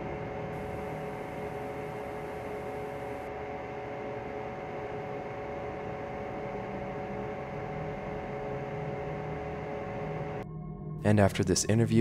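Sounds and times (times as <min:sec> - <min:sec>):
static hiss: 0:00.0 - 0:03.3
droning tones: 0:00.0 - 0:11.0
electrical hum: 0:00.0 - 0:12.0.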